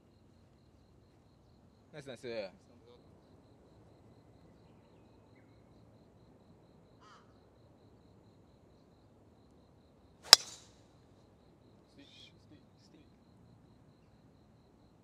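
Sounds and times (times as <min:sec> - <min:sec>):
faint bird call: 0:07.0 - 0:07.4
golf club striking ball: 0:10.3 - 0:10.7.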